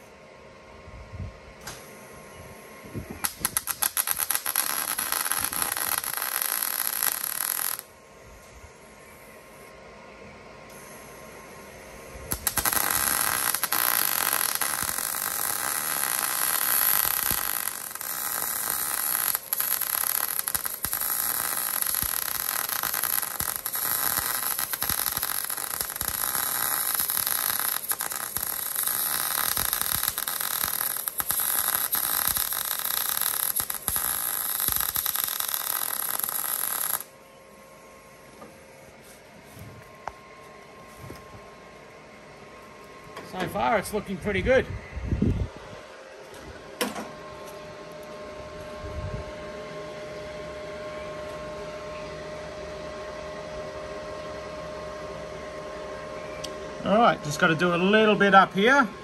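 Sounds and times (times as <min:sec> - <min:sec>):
welder arc crackling: 0:03.1 - 0:07.9, 0:12.2 - 0:37.2.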